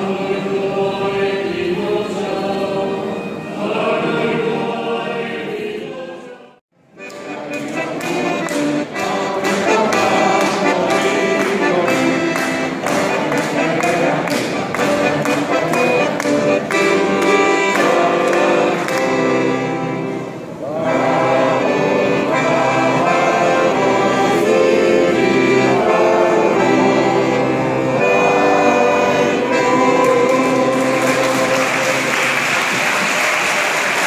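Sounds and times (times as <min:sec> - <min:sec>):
accordion: 0:00.0 - 0:06.1, 0:06.8 - 0:34.0
men's choir singing in harmony: 0:00.0 - 0:34.0
applause: 0:30.8 - 0:34.0.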